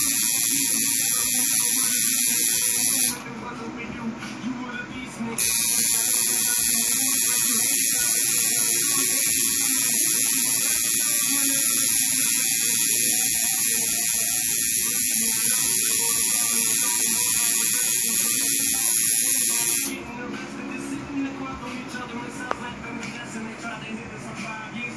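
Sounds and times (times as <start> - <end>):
tattoo machine buzzing: 0.0 - 3.2, 5.4 - 20.1.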